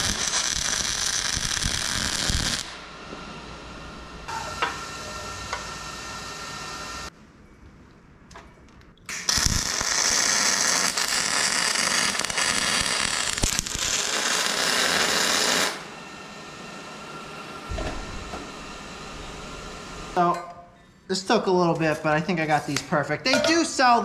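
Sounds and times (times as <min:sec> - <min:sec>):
welding arc hissing: 0:00.0 - 0:03.0, 0:09.1 - 0:15.9.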